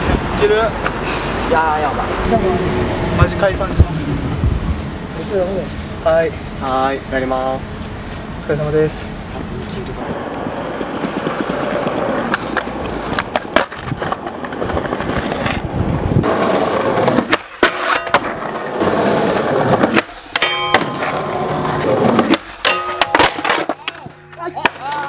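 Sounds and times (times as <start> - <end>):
skateboard wheels rolling on concrete: 0.0 - 2.6, 8.0 - 25.0
skateboard pops and landing knocks: 12.3 - 15.5, 22.1 - 25.0
steel handrail ringing: 20.4 - 21.0, 22.6 - 23.4.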